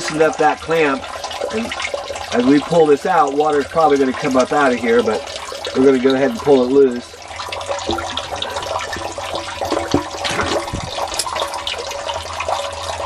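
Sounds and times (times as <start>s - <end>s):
water sloshing and gushing: 0.0s - 13.0s
knocks of pump handling: 9.7s - 11.3s.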